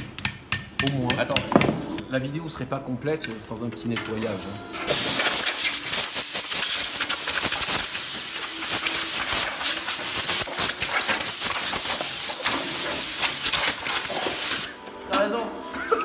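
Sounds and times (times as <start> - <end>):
pressurised cleaning jet hissing: 4.9 - 14.8.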